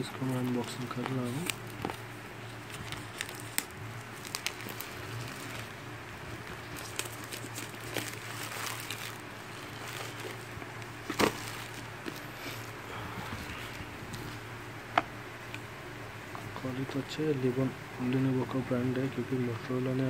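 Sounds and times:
bubble wrap rustling: 0:00.0 - 0:14.5
low background hum: 0:00.0 - 0:20.0.

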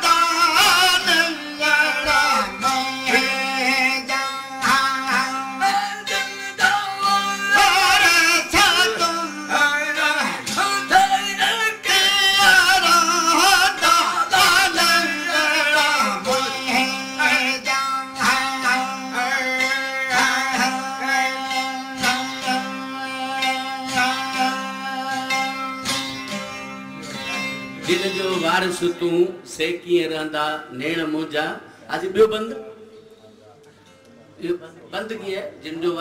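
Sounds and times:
men singing folk song: 0:00.0 - 0:25.7
plucked string instruments: 0:00.0 - 0:36.0.

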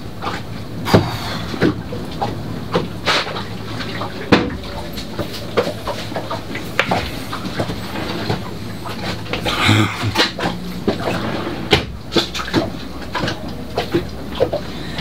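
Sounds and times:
steady low hum: 0:01.9 - 0:12.1.

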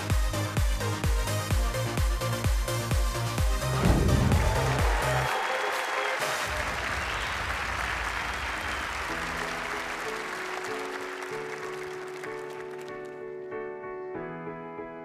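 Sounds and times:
backing music: 0:00.0 - 0:13.6
audience applauding: 0:03.7 - 0:13.4.

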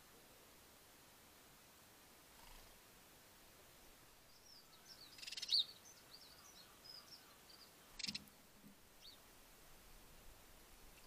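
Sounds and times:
small birds chirping: 0:02.3 - 0:02.8, 0:04.2 - 0:09.3, 0:10.7 - 0:11.0.

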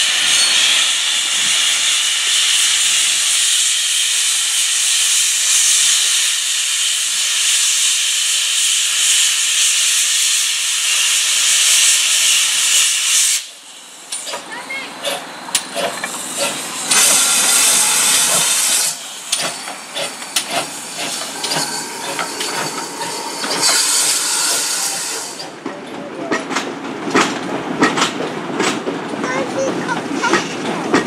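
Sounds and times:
loud hiss of steam: 0:00.0 - 0:25.6
wheels clicking over rail joints: 0:14.1 - 0:17.2, 0:25.4 - 0:31.0.

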